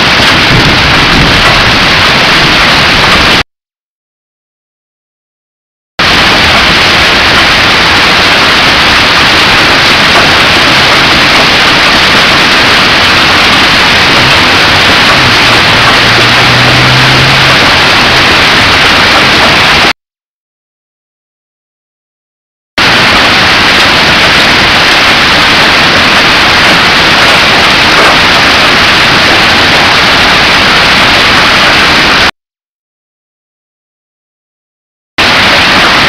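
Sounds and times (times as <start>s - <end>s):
heavy hail and rain pelting: 0.0s - 3.4s, 6.0s - 19.9s, 22.8s - 32.3s, 35.2s - 36.0s.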